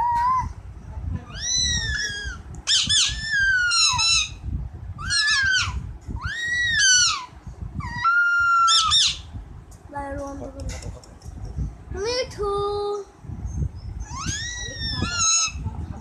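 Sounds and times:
parakeet squeaky calls: 1.3 - 4.4, 5.0 - 9.3, 14.0 - 15.6.

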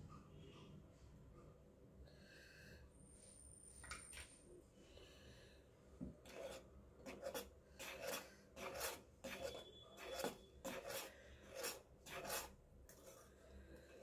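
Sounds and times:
metal spoon scraping a pot: 6.2 - 14.0.

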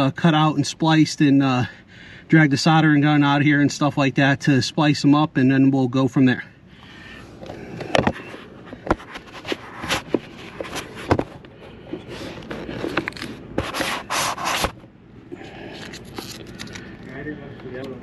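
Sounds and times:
camera handling rubbing and scraping: 7.3 - 14.8, 15.7 - 17.0.

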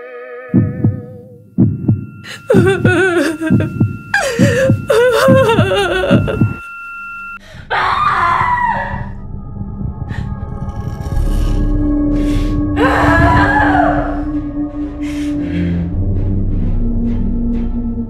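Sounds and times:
heartbeat thumps: 0.5 - 6.6
high steady ringing tone: 0.6 - 14.9
wailing voice-like sounds: 7.7 - 9.2, 12.8 - 14.3.

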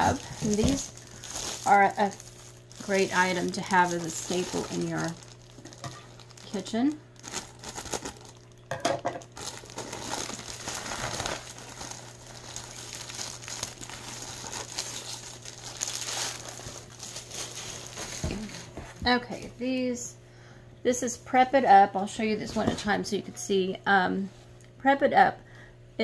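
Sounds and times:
plastic bag crinkling: 0.0 - 18.8
plastic mats crackling: 0.0 - 19.1.

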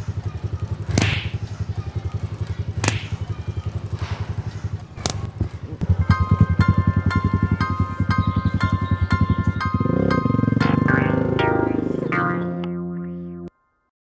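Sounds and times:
sharp crack effects: 0.9 - 1.4, 2.8 - 3.3
fast low pulse: 5.1 - 12.6
light music with struck notes: 5.9 - 13.5.

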